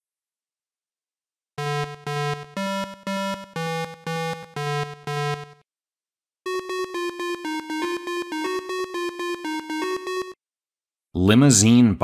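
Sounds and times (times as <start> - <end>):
buzzy eight-bit synth tune: 1.6 - 5.6, 6.5 - 10.4.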